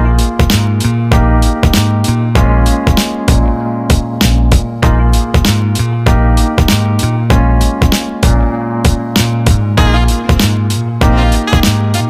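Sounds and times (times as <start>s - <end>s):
background music with beat: 0.0s - 12.0s.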